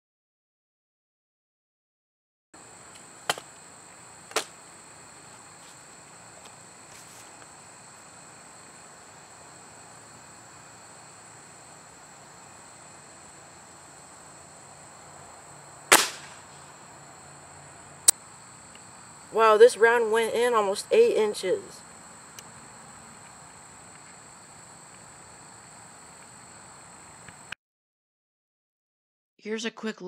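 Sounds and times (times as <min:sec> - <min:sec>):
insects trilling: 0:02.6 - 0:27.5
air rifle shot crack: 0:04.3 - 0:04.6, 0:15.9 - 0:16.6.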